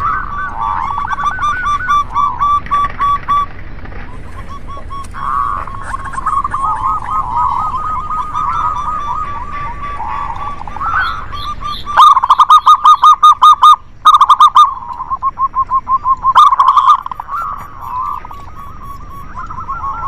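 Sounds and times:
doves cooing: 0.0 - 20.0.

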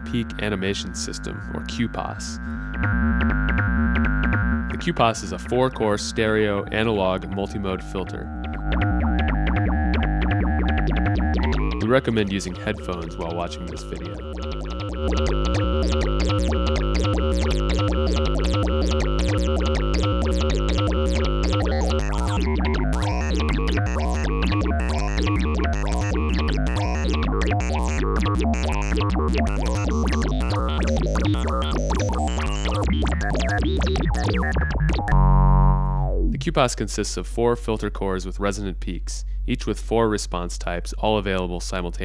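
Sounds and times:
repeating synth bass pattern: 1.1 - 36.8
synthesizer sequence: 1.2 - 36.8
fast clicky synth notes: 8.4 - 35.2.

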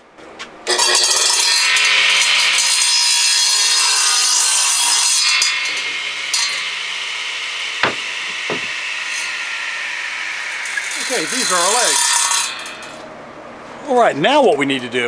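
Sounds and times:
radial arm saw cutting board: 1.5 - 12.9
sharp knocks: 7.8 - 8.8.

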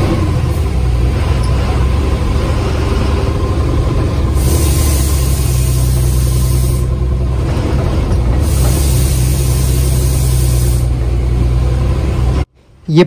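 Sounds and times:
bus engine droning: 0.0 - 13.0
high hiss: 4.4 - 6.9, 8.4 - 10.9.

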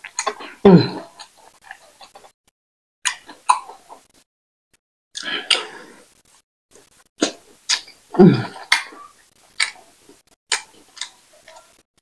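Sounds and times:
wet lip smacks and chewing: 9.6 - 9.8, 10.5 - 11.6.

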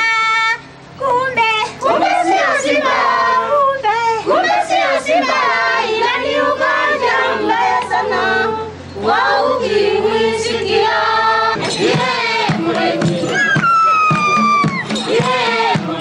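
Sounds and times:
women singing together: 0.0 - 16.0.

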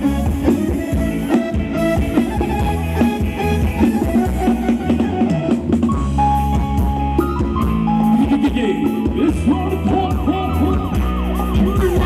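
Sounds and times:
live band playing dance music: 0.0 - 12.0.

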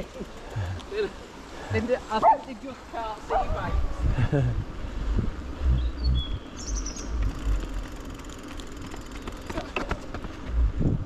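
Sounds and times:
wind rumble on microphone: 3.3 - 8.0, 10.4 - 11.0
high bird chirps: 5.7 - 7.4.

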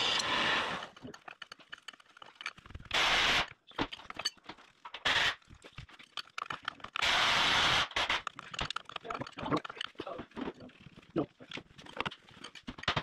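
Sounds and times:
metallic clinks of bolts and sockets: 3.8 - 4.5.

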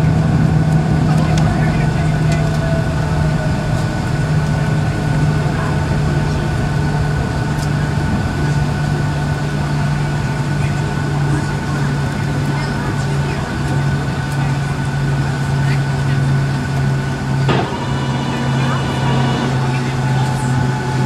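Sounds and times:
jet engines roaring in cabin: 0.0 - 21.0
thin high whine: 17.5 - 21.0.

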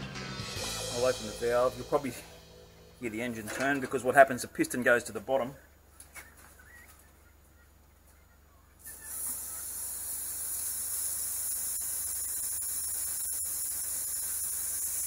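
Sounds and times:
compressed air hissing: 8.8 - 15.0.

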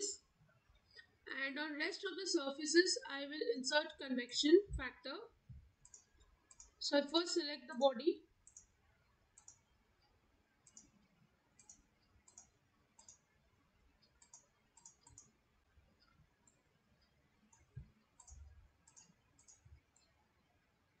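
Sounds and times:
computer mouse clicks: 5.8 - 6.8, 8.4 - 13.4, 14.0 - 15.4, 16.0 - 20.2.

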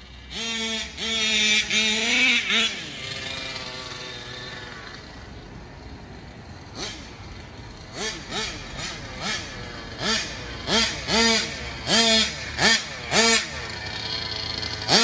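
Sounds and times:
two-stroke engine revving: 0.0 - 15.0.

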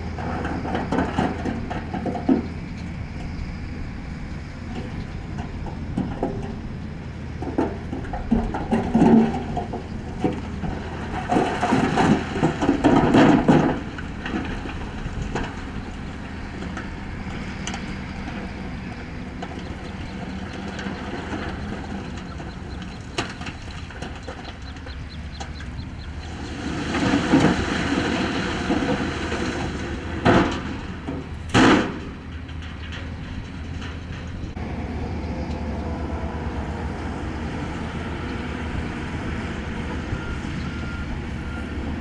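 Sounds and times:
rock and dirt tumbling: 0.0 - 34.6
diesel machinery running: 0.0 - 42.0
scattered knocks: 7.3 - 26.1.

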